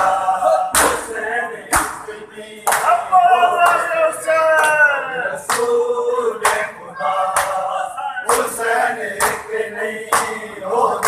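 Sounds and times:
men chanting a lament: 0:00.0 - 0:11.0
hands slapping bare chests: 0:00.7 - 0:01.1, 0:01.7 - 0:03.0, 0:07.3 - 0:07.6, 0:09.2 - 0:09.5, 0:10.1 - 0:10.4.

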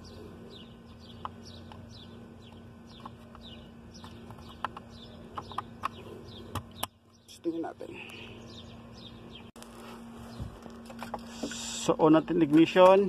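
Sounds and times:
small birds chirping: 0:00.0 - 0:13.0
steady low hum: 0:00.0 - 0:13.0.

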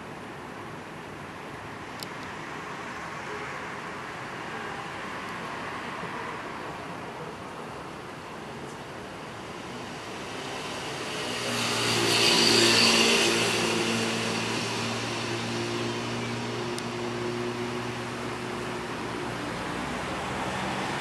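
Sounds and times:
vehicle passing: 0:09.7 - 0:21.0.

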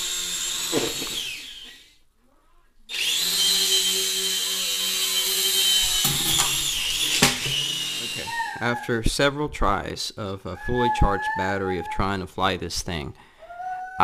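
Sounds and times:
toy helicopter motor whining: 0:00.0 - 0:01.9, 0:02.9 - 0:08.7.

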